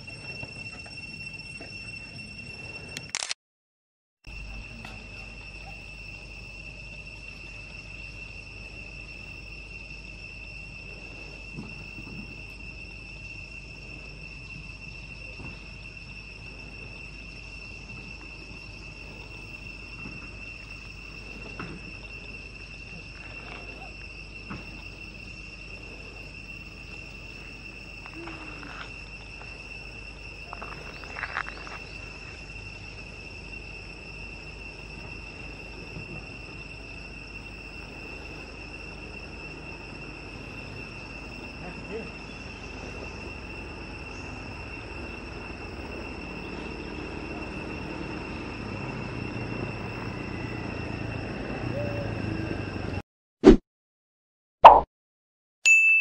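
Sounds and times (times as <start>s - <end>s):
high-pitched insect drone: 0.0s - 3.4s, 4.2s - 53.0s.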